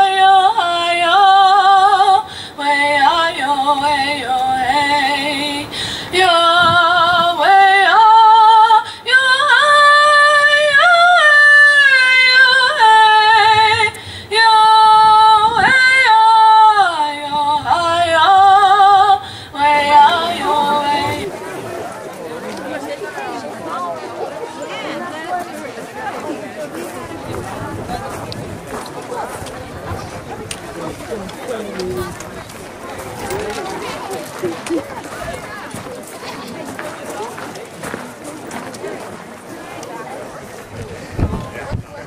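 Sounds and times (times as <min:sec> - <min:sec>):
woman singing unaccompanied: 0:00.0 - 0:21.4.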